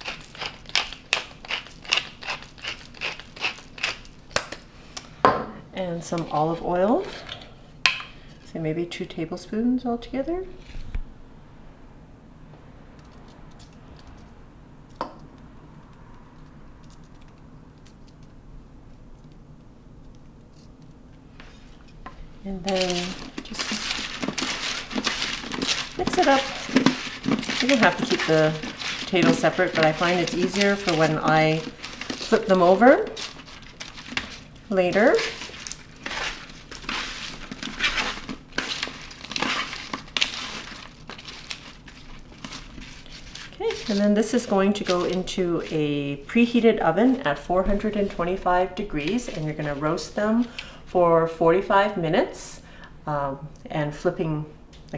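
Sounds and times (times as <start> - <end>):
vegetables rustling on baking paper: 0.0 - 5.0, 22.5 - 47.4.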